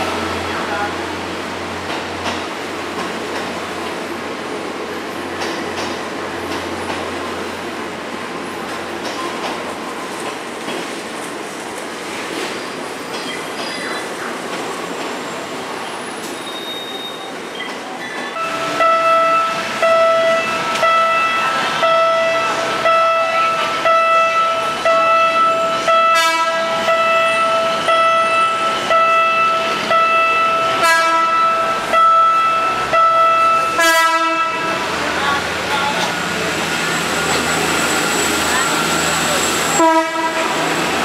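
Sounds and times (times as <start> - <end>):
train rumble: 0.0 - 16.5, 17.6 - 41.0
level-crossing warning signal: 16.2 - 41.0
train horn blasts: 18.4 - 34.8, 39.8 - 40.8.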